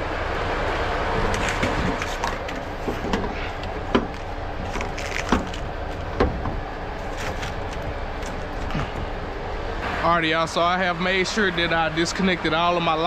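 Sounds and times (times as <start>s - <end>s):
metallic knocks and clanks: 1.2s - 9.0s.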